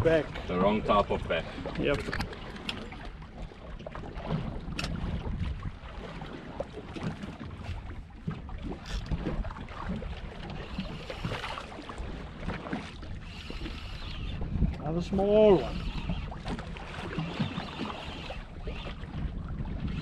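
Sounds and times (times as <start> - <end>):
sea noise: 0.0 - 20.0
wind rumbling on microphone: 0.0 - 20.0
small clicks and knocks: 1.9 - 2.8.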